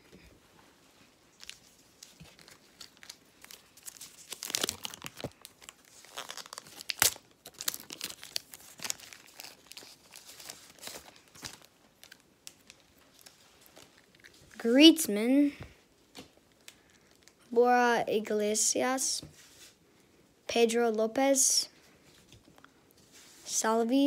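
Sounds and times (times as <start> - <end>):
card pack wrapper tearing: 1.4 - 14.3.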